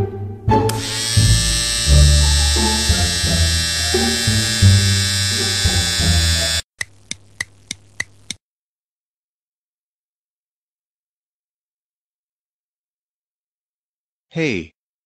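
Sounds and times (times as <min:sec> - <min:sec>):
background music: 0:00.0 - 0:06.6
cartoon electric razor buzzing: 0:00.7 - 0:08.4
quick ticks: 0:05.6 - 0:08.4.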